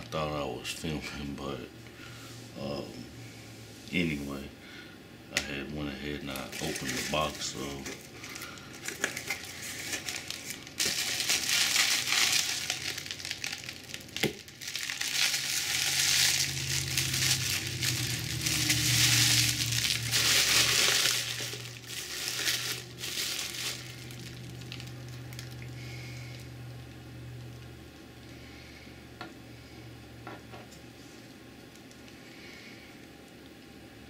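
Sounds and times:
low steady hum: 0:00.0 - 0:34.0
plastic wrap crinkling: 0:06.2 - 0:27.7, 0:31.0 - 0:32.2.

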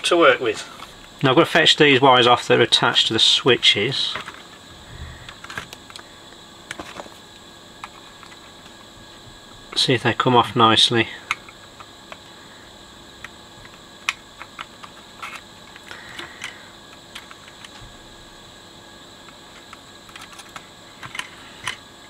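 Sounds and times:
faint background hum: 0:00.0 - 0:22.0.

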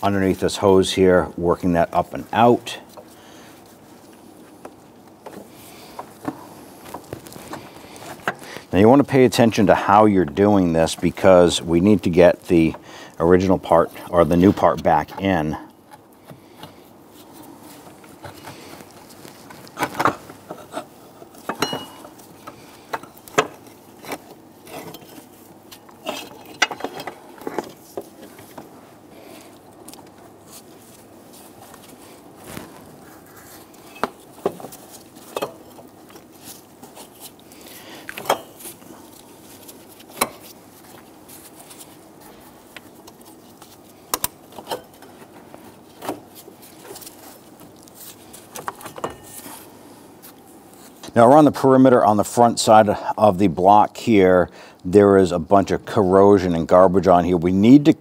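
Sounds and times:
metal clinks and knocks: 0:21.5 - 0:22.2.

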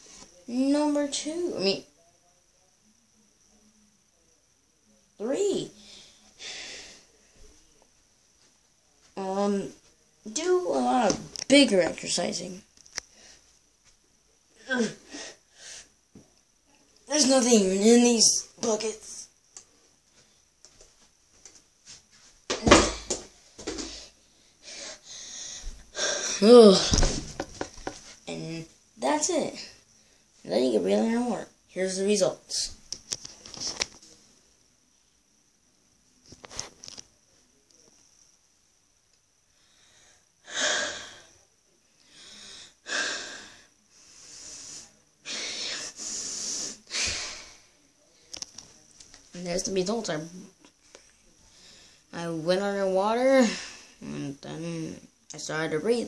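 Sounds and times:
boy breathing heavily: 0:05.8 - 0:07.2, 0:14.6 - 0:15.9, 0:22.9 - 0:27.2, 0:39.6 - 0:41.4, 0:42.0 - 0:47.7, 0:51.4 - 0:52.1, 0:53.3 - 0:54.1
heavy breathing: 0:05.8 - 0:07.2, 0:23.6 - 0:27.0.

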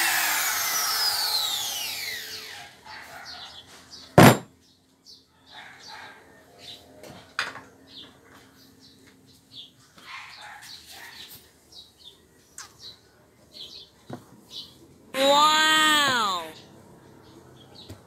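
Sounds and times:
motor whine spinning down: 0:00.0 - 0:02.5
trimmer thud on wooden table: 0:04.2 - 0:04.5.

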